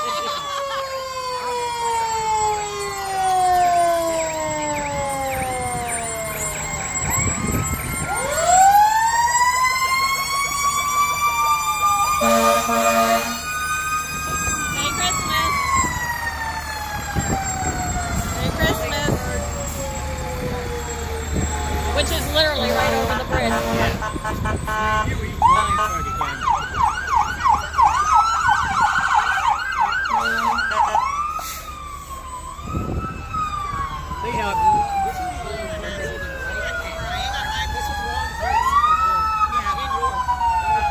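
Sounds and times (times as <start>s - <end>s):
fire engine sirens wailing: 0.0s - 40.9s
loud horn blast: 12.2s - 13.5s, 22.5s - 26.0s.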